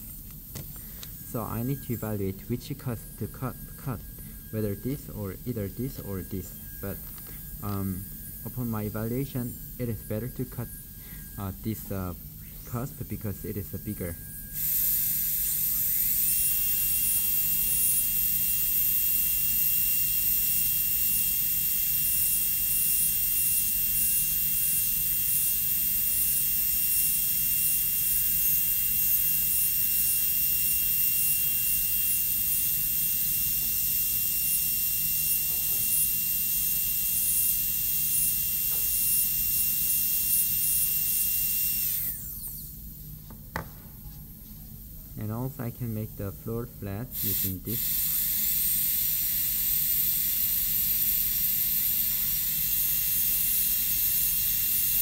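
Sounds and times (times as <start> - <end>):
dental drill whining: 0.0 - 43.3, 44.8 - 55.0.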